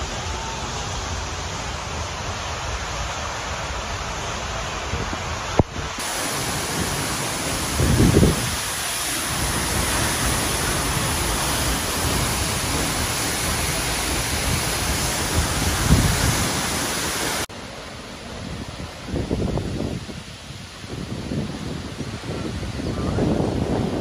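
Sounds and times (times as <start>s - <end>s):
waterfall rushing: 0.0s - 24.0s
wind buffets on microphone: 4.9s - 17.4s, 18.3s - 24.0s.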